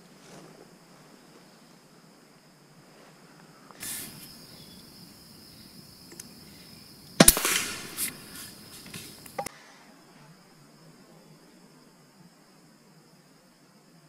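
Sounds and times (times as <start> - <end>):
air rifle shot crack: 7.2 - 9.4.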